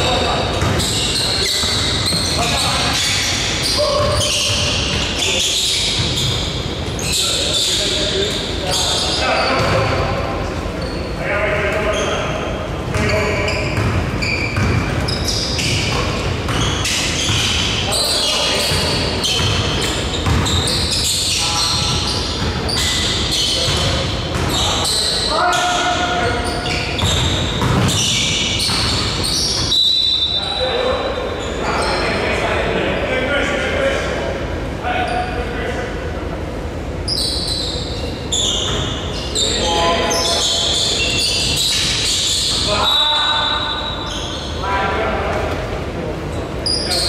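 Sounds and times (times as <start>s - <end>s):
sneakers squeaking: 0.0s - 32.4s, 36.9s - 47.0s
basketball bouncing: 0.5s - 2.6s, 13.7s - 17.7s, 18.7s - 20.9s, 23.6s - 24.6s, 27.0s - 29.7s.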